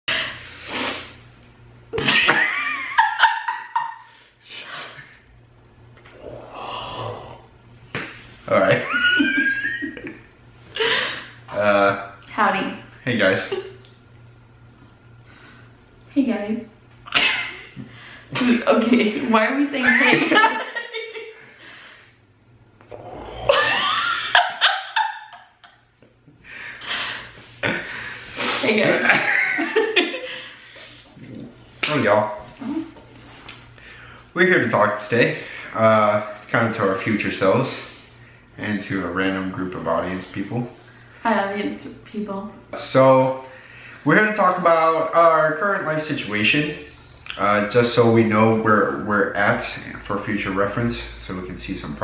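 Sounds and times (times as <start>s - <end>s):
people laughing and giggling: 2.0s - 4.0s, 19.8s - 21.4s, 23.5s - 25.8s, 28.9s - 30.6s.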